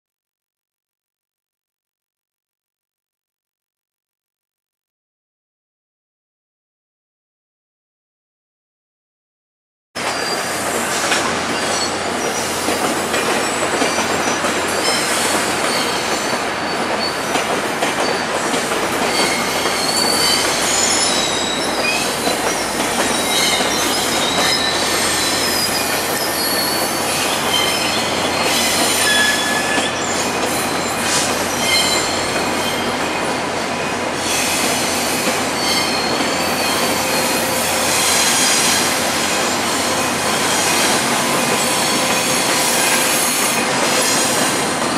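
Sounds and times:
train rumbling: 10.0s - 44.9s
train wheels squealing: 10.0s - 44.9s.

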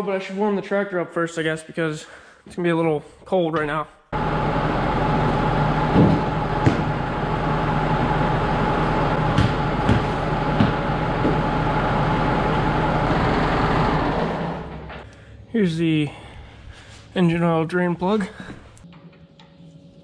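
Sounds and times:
diesel engine idling with whine: 4.2s - 15.1s.

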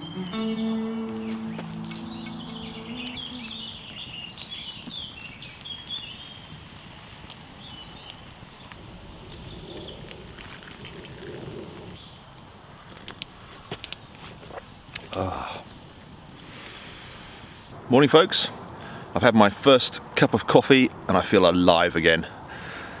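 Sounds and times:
strummed guitar tune: 0.0s - 3.9s
songbirds chirping and singing: 0.0s - 6.3s.

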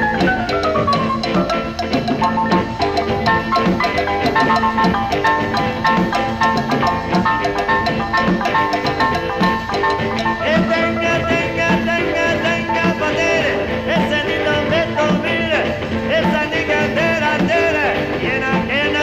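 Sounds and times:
gliding melody line: 0.0s - 13.5s
background music with steady beat: 0.0s - 19.0s.

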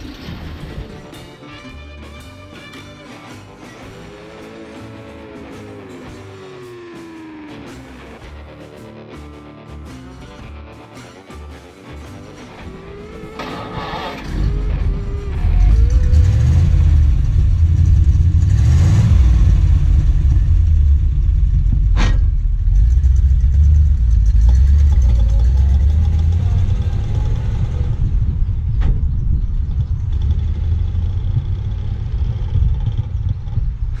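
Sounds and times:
car engine exhaust rumble: 12.5s - 34.0s.

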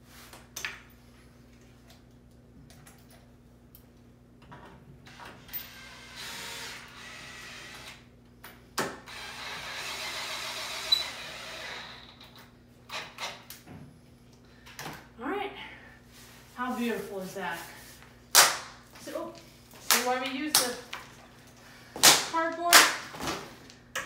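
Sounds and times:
cordless drill whining: 9.1s - 12.2s.

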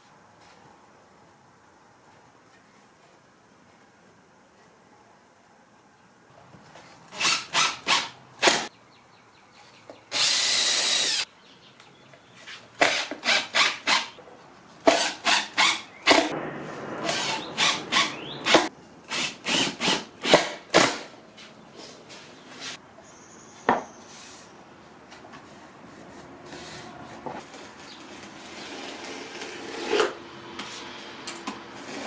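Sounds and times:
impact driver driving screws: 12.8s - 14.1s.

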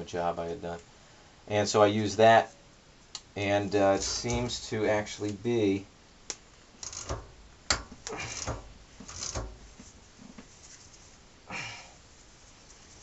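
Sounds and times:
wrench clicking and scraping: 4.0s - 4.6s, 6.8s - 9.6s.

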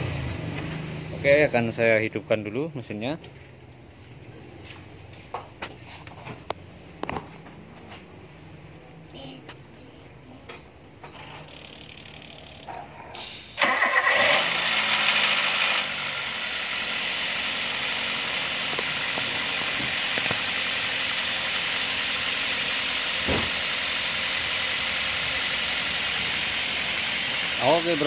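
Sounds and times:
car engine starting and idling: 13.6s - 28.0s.

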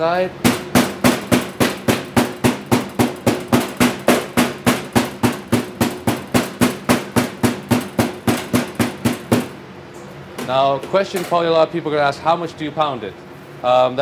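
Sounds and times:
metal mallet pounding meat: 0.4s - 9.6s.

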